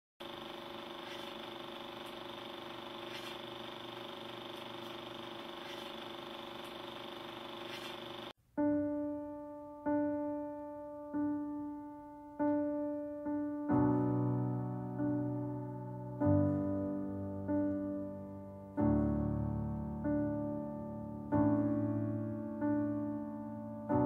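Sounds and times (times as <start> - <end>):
mechanical whir with ticks: 0.2 - 8.3
slow solo piano notes: 8.6 - 24.0.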